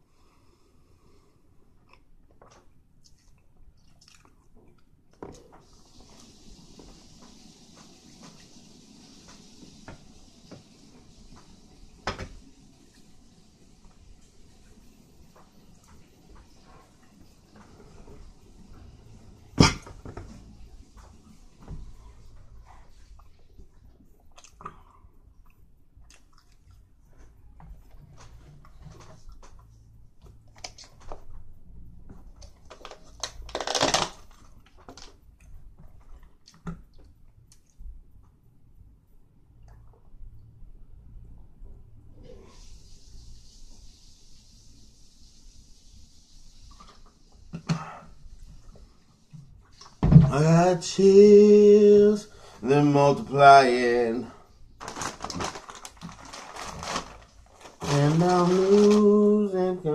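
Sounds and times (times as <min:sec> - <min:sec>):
person chewing food: 0:01.8 - 0:05.5, 0:24.0 - 0:27.0
mouth clicks and smacks: 0:24.2 - 0:26.8
crackling rustle: 0:32.2 - 0:35.2, 0:54.8 - 0:59.5.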